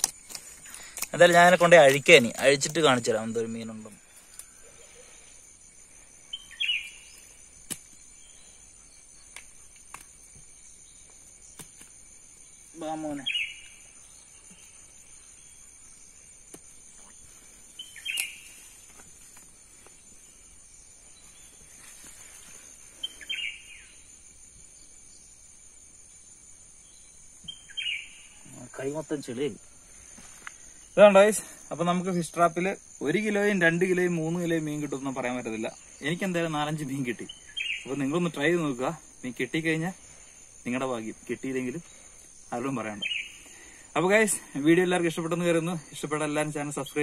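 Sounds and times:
insects whining: 0.0s - 47.0s
bird chirp: 2.1s - 25.5s, 26.8s - 29.8s, 34.2s - 39.0s, 41.5s - 44.6s.

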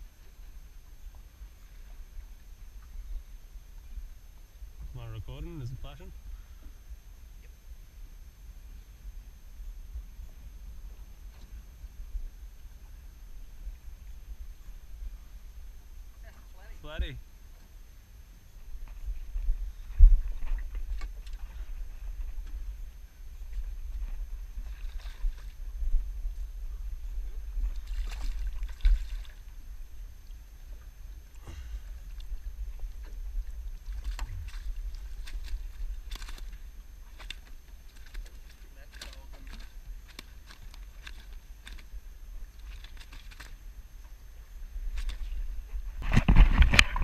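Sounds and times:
wind rumble on microphone: 0.0s - 47.0s
wind buffeting microphone: 18.7s - 30.0s
water splashes from net: 27.8s - 29.4s.

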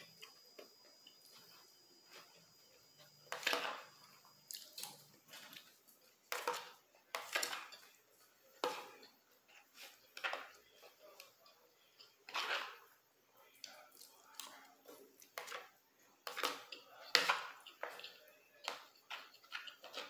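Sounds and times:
close chewing: 4.0s - 6.3s, 7.7s - 15.6s, 16.2s - 20.0s
fork scraping on plate: 4.9s - 13.0s, 15.3s - 20.0s.

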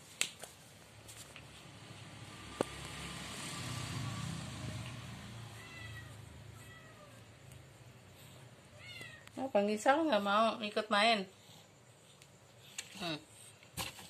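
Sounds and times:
cat meowing faintly: 5.4s - 7.4s, 8.7s - 9.4s.

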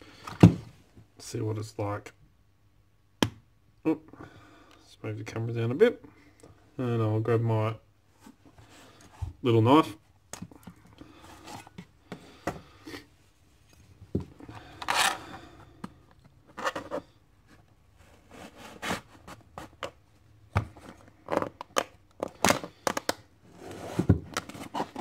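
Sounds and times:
knife scraping plastic: 14.5s - 20.0s, 20.8s - 25.0s.

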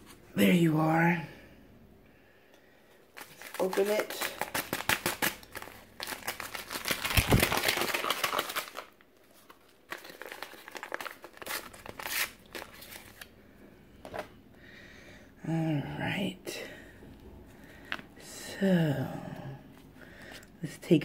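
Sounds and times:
paper packet crinkling and tearing: 3.1s - 13.3s.

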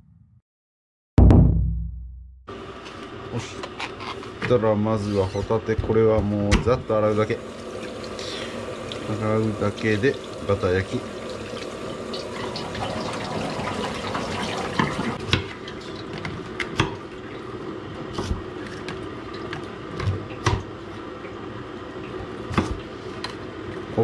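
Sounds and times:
tap water splashing: 7.7s - 17.0s.

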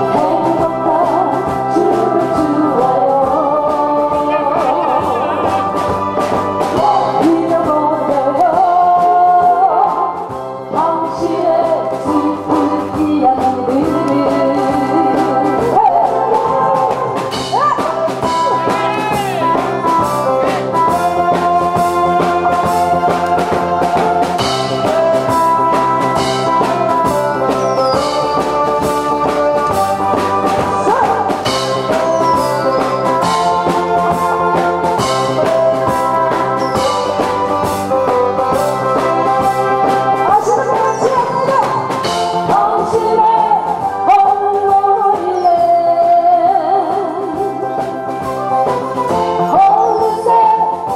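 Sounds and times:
woman singing: 0.0s - 18.8s, 20.3s - 50.9s
steady drum beat: 0.0s - 45.3s
brass: 13.8s - 44.4s.

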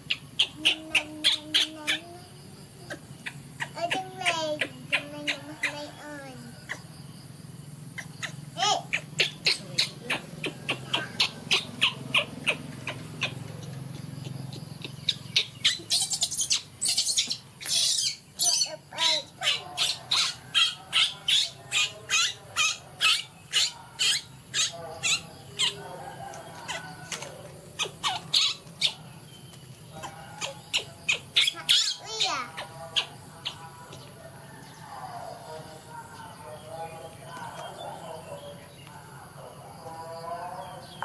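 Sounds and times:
baby monkey squeaking: 0.0s - 2.2s, 2.8s - 7.0s, 7.9s - 33.8s.

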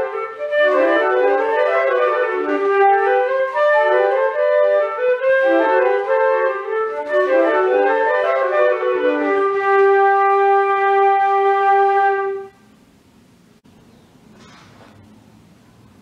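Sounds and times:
flutes playing together: 0.0s - 12.6s.

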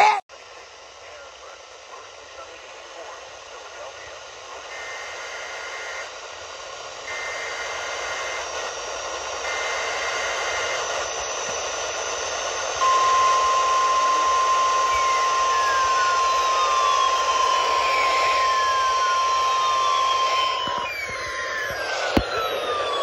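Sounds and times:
radio hiss: 0.5s - 6.1s, 7.0s - 23.0s
loud steady attention tone: 7.1s - 23.0s
digital header tone bursts: 12.8s - 23.0s
faint falling whistle: 12.8s - 23.0s.

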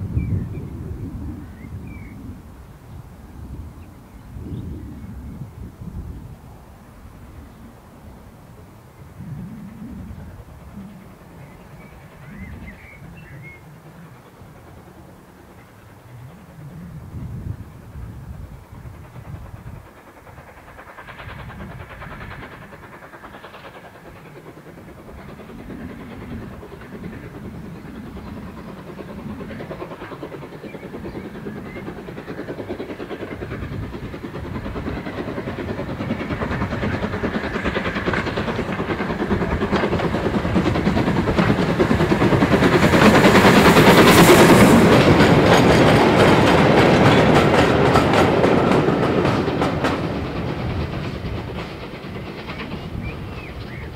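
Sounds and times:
steam locomotive exhaust beats: 0.0s - 53.9s
wagons clattering over rail joints: 28.2s - 53.9s.

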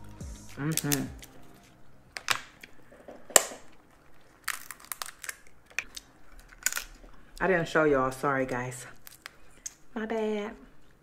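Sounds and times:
crab shells cracking: 0.5s - 7.4s, 8.9s - 9.9s.

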